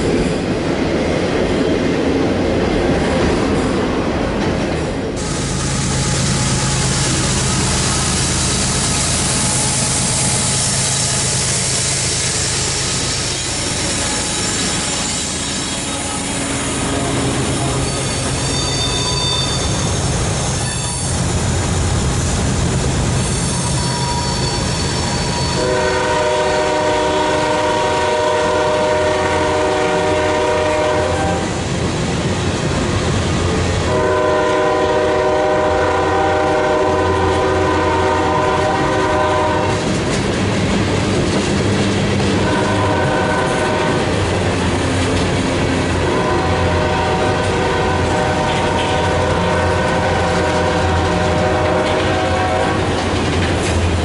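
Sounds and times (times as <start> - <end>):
freight train rumbling on rails: 0.0 - 54.0
wheel squeals: 17.5 - 21.3, 23.2 - 25.6
locomotive chime horn blasts: 23.5 - 31.6, 33.9 - 39.7, 42.4 - 44.0, 46.0 - 52.9.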